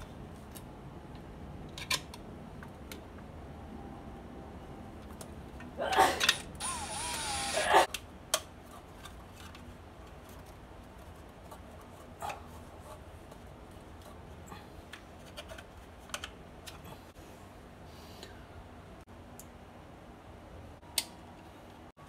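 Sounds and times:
clicks and rustles of handling wiring: 0.0 - 3.3, 7.9 - 17.1
cordless drill running: 6.6 - 7.8.

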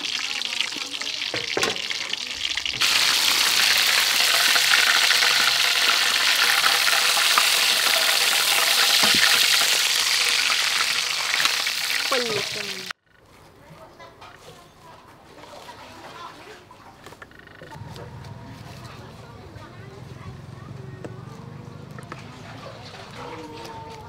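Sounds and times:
fish sizzling in hot oil: 0.0 - 12.9.

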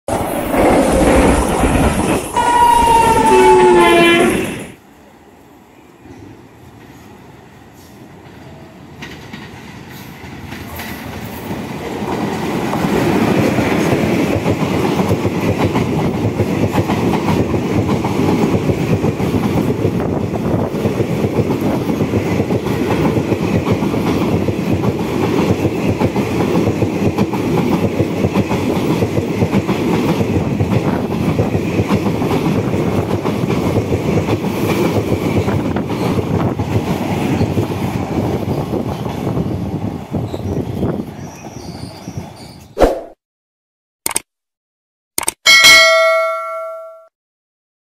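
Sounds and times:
train rumbling past: 0.1 - 42.6
wheels clacking over rail joints: 8.2 - 19.8.

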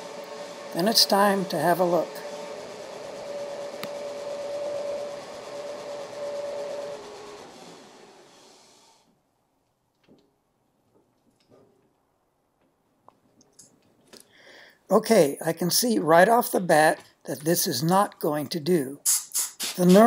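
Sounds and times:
metal lathe running with whine: 0.0 - 8.8
lathe spindle coasting down: 0.0 - 9.1.

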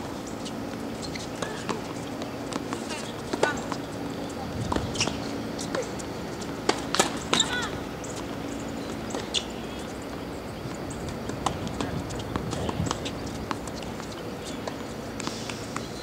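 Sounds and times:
tennis balls bouncing: 0.0 - 16.0.

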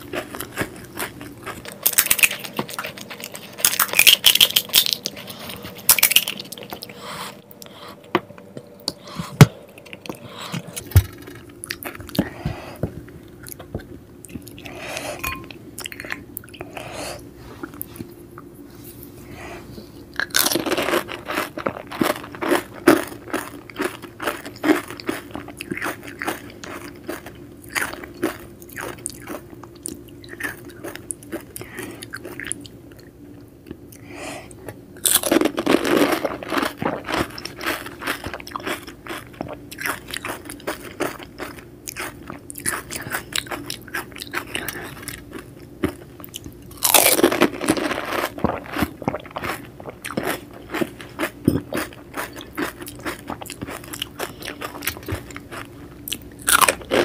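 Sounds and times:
crisp puri crunching: 0.0 - 7.0, 20.2 - 32.7, 35.0 - 57.0
crackly chewing: 0.0 - 15.2, 20.0 - 34.0, 34.6 - 57.0.

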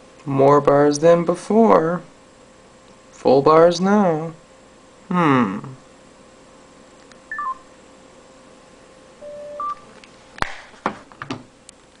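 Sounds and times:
phone keypad beeps: 7.3 - 7.6, 9.2 - 9.8.

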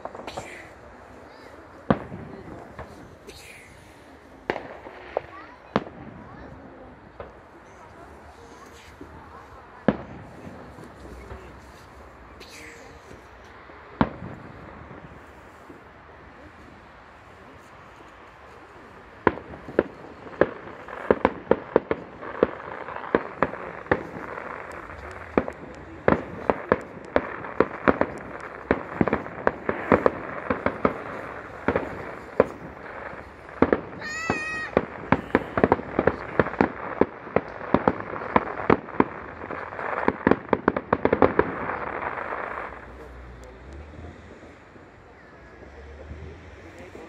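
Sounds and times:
firework crackle: 0.0 - 47.0
firework shells bursting: 19.2 - 42.9.

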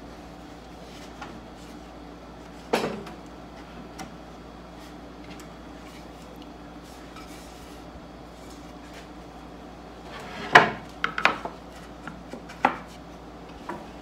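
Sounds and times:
wooden parts knocking on workbench: 10.5 - 11.6.

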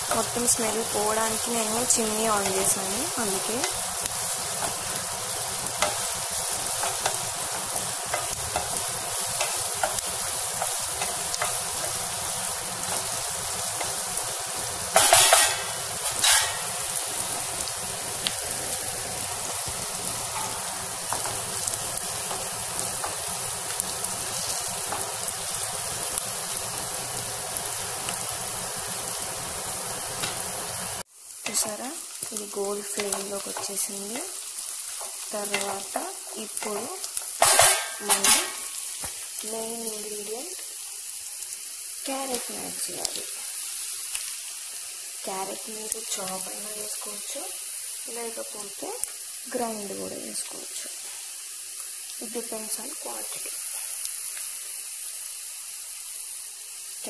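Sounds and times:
onions sizzling in hot oil: 0.0 - 57.0.

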